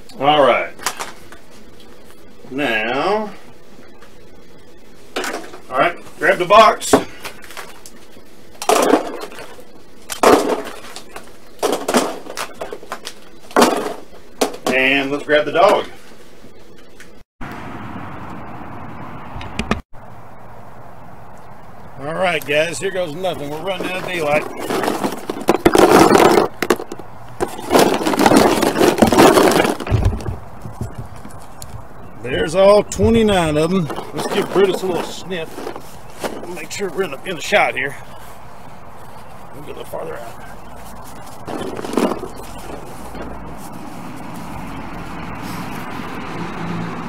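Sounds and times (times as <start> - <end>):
plastic eggs clattering into a box: 8.6 - 14.8, 23.7 - 31.4, 33.7 - 36.8, 41.5 - 43.3.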